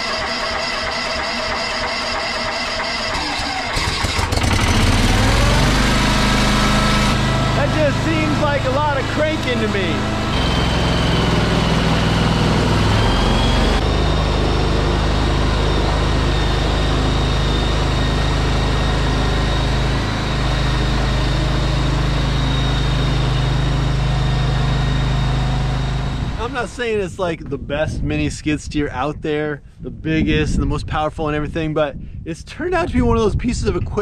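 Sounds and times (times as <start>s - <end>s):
skid steer engine running: 0.0s - 27.0s
thin high whine: 5.2s - 27.2s.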